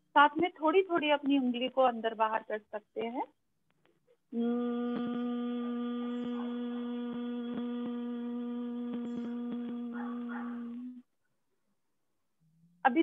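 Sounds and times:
woman humming one long note: 4.3s - 11.1s.

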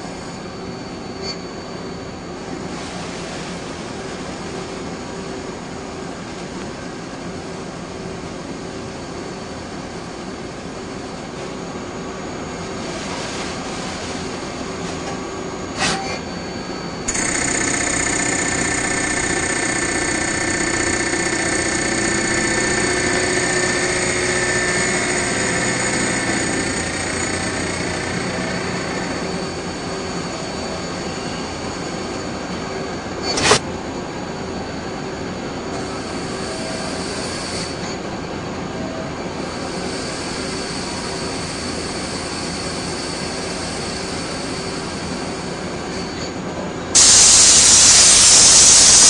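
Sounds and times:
high whine: 0.0s - 38.1s, 47.0s - 49.0s
lathe turning metal: 16.2s - 31.8s.

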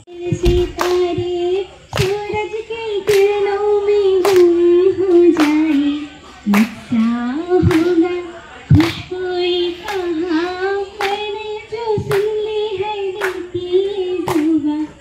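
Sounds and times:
woman singing into microphone: 0.0s - 15.0s.

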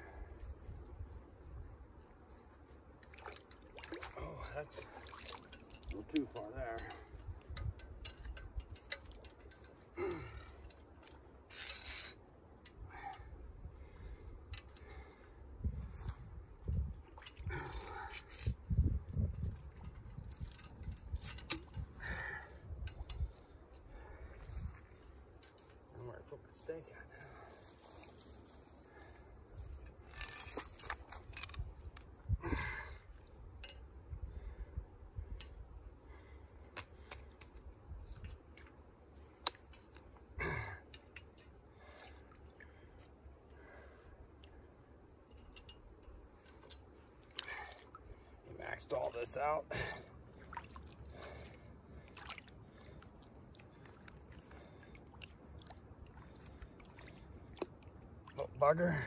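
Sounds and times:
metal trap and chain clinking: 5.4s - 12.2s, 17.6s - 18.7s, 19.4s - 21.8s, 26.8s - 31.7s
metal gear clicking and clinking: 11.5s - 12.2s, 30.0s - 31.7s.

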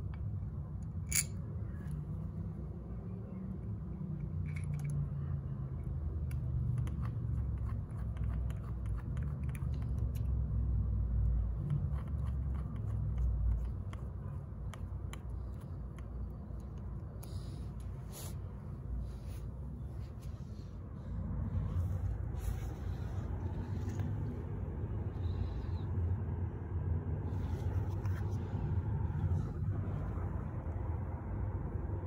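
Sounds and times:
screwdriver clicking on metal: 1.0s - 1.4s.

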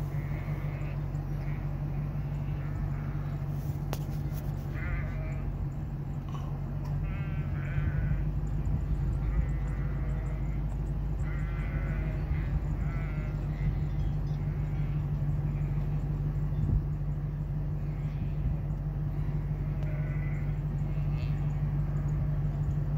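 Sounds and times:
steady low hum: 0.0s - 22.9s
sheep bleating: 0.1s - 3.4s, 4.6s - 5.6s, 6.8s - 8.3s, 8.9s - 16.0s, 19.1s - 22.0s.

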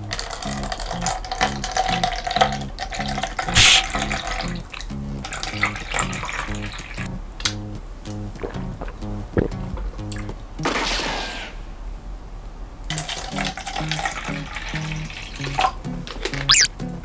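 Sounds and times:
liquid pouring into plastic cups: 0.1s - 7.0s, 12.9s - 15.8s.

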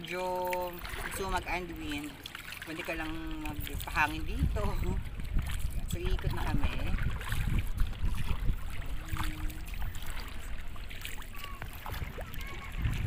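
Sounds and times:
water splashing against boat: 0.0s - 13.0s
wind rumbling on microphone: 2.9s - 13.0s.

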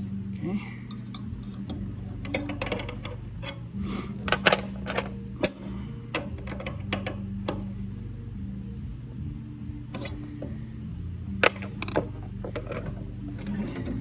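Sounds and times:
metal tools clinking on steel: 0.9s - 7.2s.

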